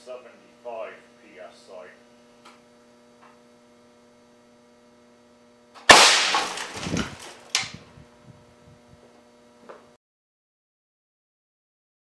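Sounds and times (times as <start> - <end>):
sharp crack: 5.8 - 7.7
air cannon blast: 5.9 - 7.3.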